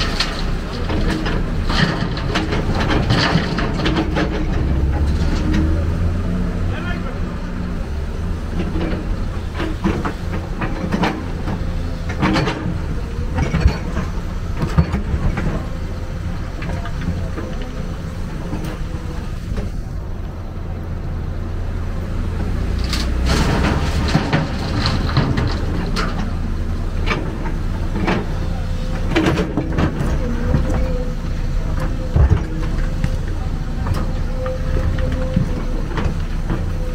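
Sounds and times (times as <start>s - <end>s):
excavator engine running: 0.0s - 36.9s
machine knocks and clanks: 8.5s - 15.8s, 23.2s - 26.4s.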